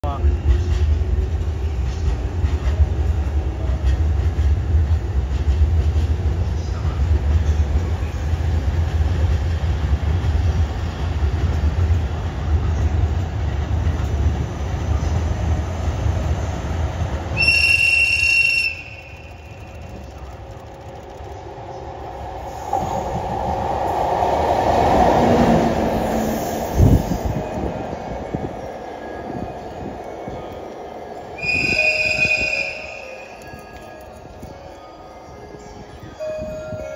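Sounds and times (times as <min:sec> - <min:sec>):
locomotive running past: 0:00.2 - 0:34.4
locomotive whistle blast: 0:17.3 - 0:19.6, 0:31.4 - 0:33.4.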